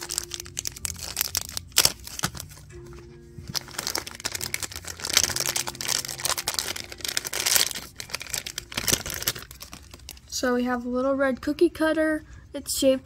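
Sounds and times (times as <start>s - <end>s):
plastic bag crinkling: 0.0s - 2.6s, 3.5s - 10.4s
soft background music: 0.0s - 13.0s.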